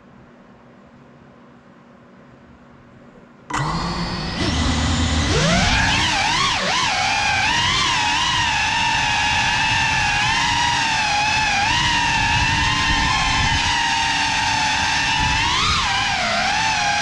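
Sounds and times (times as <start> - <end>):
quadcopter motors whining: 3.5 - 17.0.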